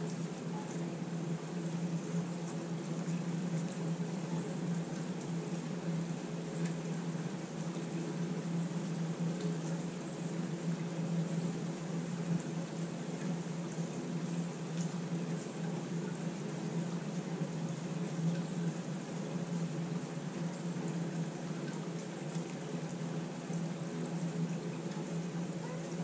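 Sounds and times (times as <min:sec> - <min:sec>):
steady low hum: 0:00.0 - 0:26.0
light ticks: 0:14.7 - 0:15.0.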